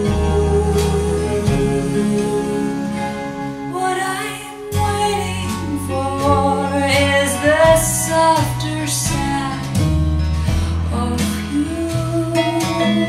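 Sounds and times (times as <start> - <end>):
instrumental backing music: 0.0 - 13.0
woman singing a slow song: 3.7 - 9.9, 10.5 - 13.0.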